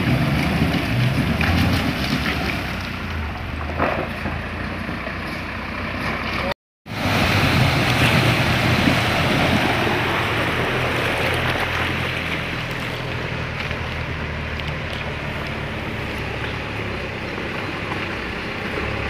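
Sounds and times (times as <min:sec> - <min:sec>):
off-road vehicle engine running: 0:00.0 - 0:19.0
water rushing and splashing: 0:06.9 - 0:19.0.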